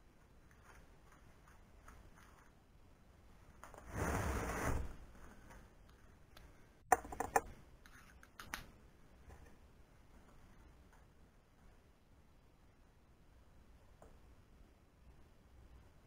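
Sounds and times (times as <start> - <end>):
scraping rustle: 3.7 - 5.0.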